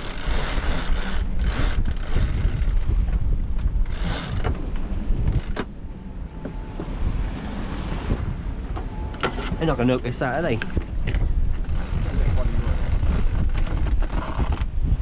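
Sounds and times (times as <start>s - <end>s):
winch ratcheting: 0.0s - 2.9s, 3.8s - 4.6s, 11.6s - 14.7s
wind rumble on microphone: 0.0s - 15.0s.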